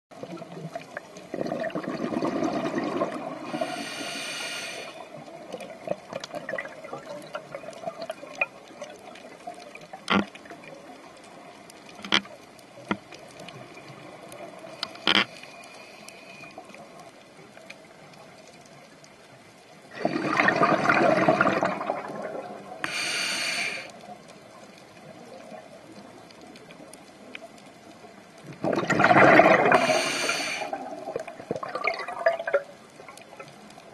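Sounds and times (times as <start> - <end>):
exhaled bubbles gurgling: 0.1 - 15.0, 19.8 - 33.9
regulator inhale hiss: 3.4 - 5.1, 14.7 - 16.8, 22.8 - 24.0, 29.7 - 30.8.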